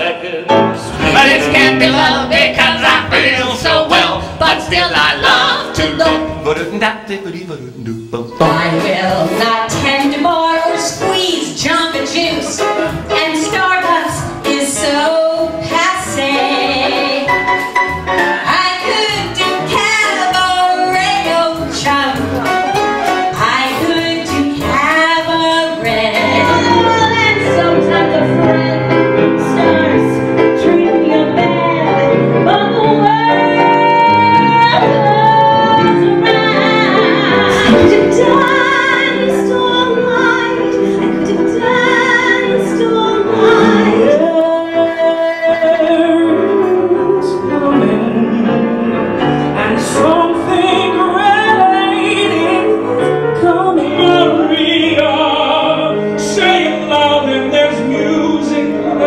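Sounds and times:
musical accompaniment: 0:00.0 - 0:59.0
person singing: 0:07.8 - 0:15.2, 0:23.4 - 0:52.8.

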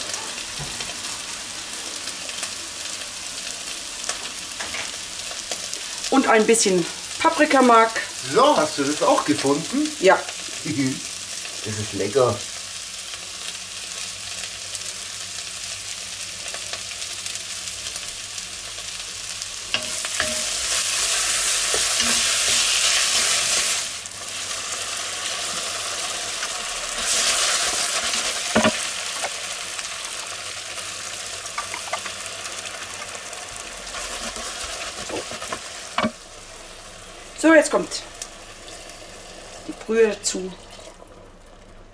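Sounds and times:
vegetables sizzling in butter: 0:00.0 - 0:41.9.

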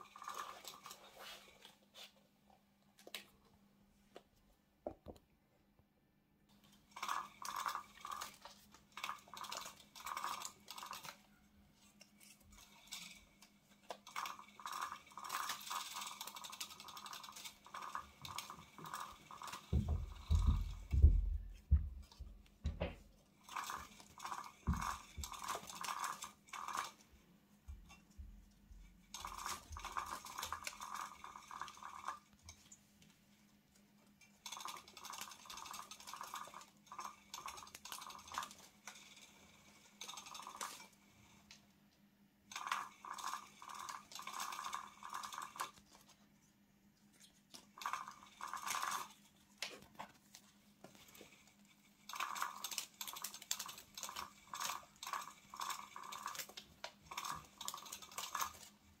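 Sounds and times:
toy motor whirring and clattering: 0:00.0 - 0:01.8, 0:06.5 - 0:21.1, 0:23.3 - 0:27.2, 0:29.0 - 0:32.7, 0:34.2 - 0:41.6, 0:42.5 - 0:46.2, 0:47.2 - 0:59.0.

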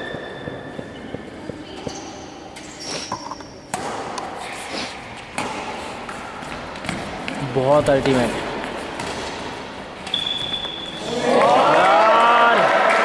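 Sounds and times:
rackets hitting shuttlecock: 0:00.0 - 0:04.4, 0:05.0 - 0:11.0.

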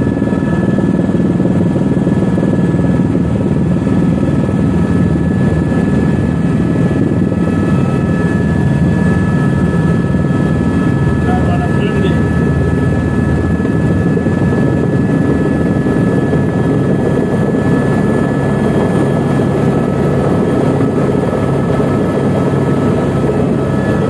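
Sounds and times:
helicopter rotor and engine noise: 0:00.0 - 0:24.0
thin high whine: 0:11.1 - 0:12.4.

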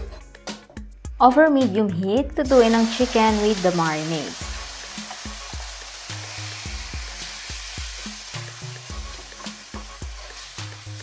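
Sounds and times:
background music with low notes: 0:00.0 - 0:11.0
chicken sizzling in frying oil: 0:02.4 - 0:11.0.

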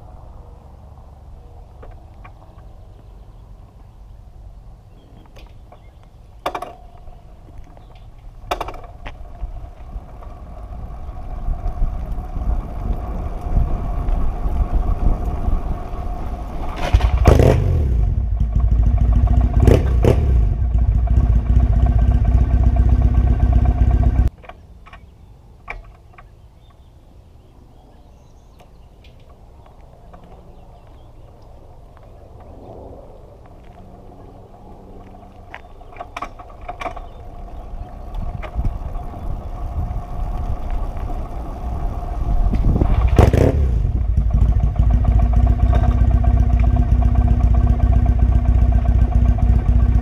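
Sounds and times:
motorcycle engine rumbling: 0:00.0 - 0:26.9, 0:28.8 - 0:50.0
wind and rolling noise: 0:00.0 - 0:50.0
motorcycle clunks: 0:05.1 - 0:09.4, 0:24.3 - 0:26.8, 0:35.5 - 0:38.9.

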